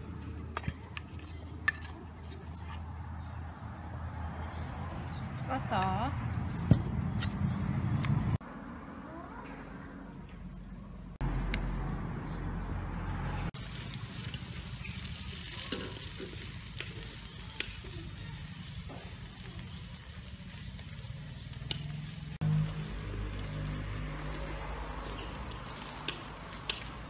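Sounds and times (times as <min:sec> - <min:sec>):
food sizzling in hot oil: 0:13.6 - 0:27.0
oil crackling and popping: 0:13.6 - 0:27.0.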